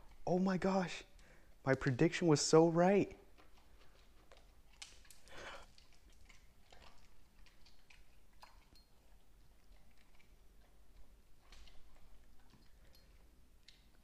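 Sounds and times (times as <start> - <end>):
dog crunching dry kibble: 0.0 - 14.0.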